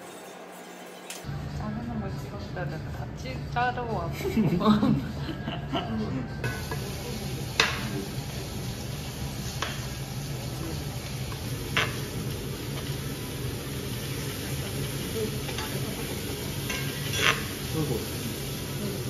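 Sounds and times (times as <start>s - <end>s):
food sizzling as it fries: 6.4s - 19.0s.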